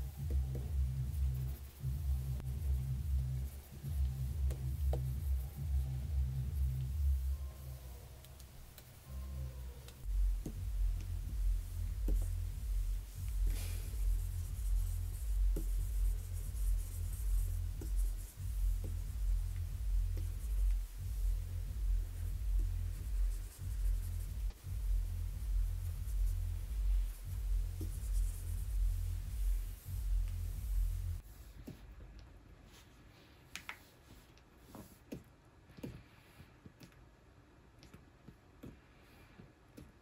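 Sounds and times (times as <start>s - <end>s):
low pulsing rumble: 9.1s - 31.2s.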